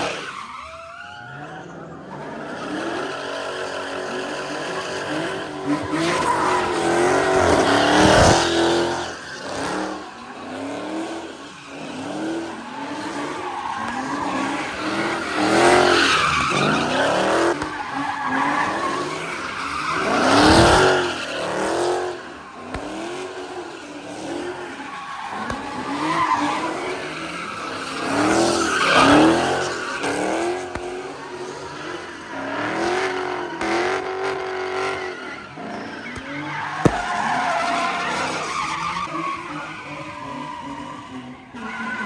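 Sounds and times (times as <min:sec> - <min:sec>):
tyre squeal: 0:00.0 - 0:42.0
car engine revving: 0:01.7 - 0:41.8
sharp crack: 0:36.2 - 0:37.5.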